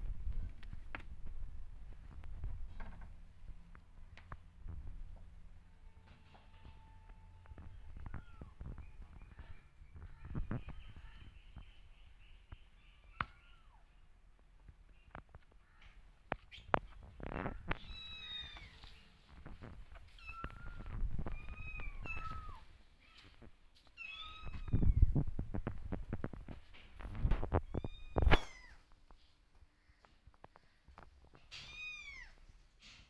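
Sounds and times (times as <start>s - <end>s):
kittens meowing: 7.5s - 11.2s, 16.6s - 18.9s, 20.1s - 23.3s, 24.0s - 25.1s, 27.6s - 28.8s.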